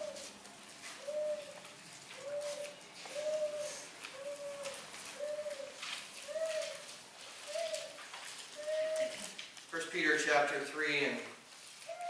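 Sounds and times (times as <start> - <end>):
book pages turning and rustling: 0.0 - 9.7
soft coo-like hooting tone: 1.0 - 1.6, 2.2 - 6.8, 8.6 - 9.3.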